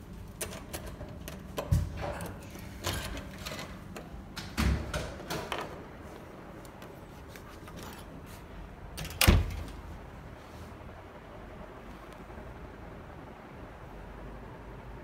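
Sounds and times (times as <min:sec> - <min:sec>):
door opening clicks and knocks: 0:00.4 - 0:05.9, 0:09.0 - 0:09.9.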